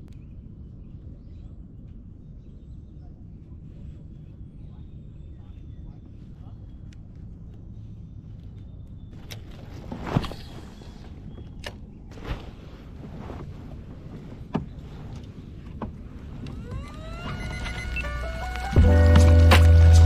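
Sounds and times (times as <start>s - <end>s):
music: 17.3s - 20.0s.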